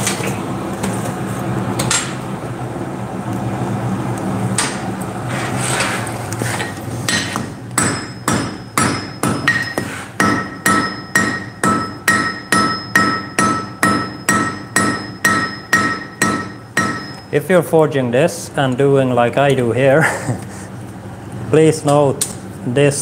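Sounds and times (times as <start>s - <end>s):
hammer ringing on anvil: 7.1s - 17.4s.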